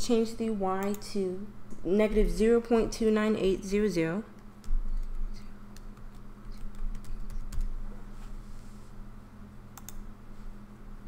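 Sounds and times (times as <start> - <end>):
steady low hum: 0.0 - 11.0
computer keyboard keys clicking: 4.6 - 7.7, 9.8 - 10.0.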